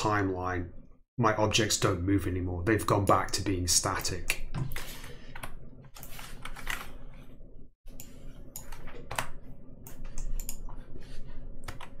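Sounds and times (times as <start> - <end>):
keyboard and mouse clicking: 8.0 - 10.7, 11.6 - 12.0.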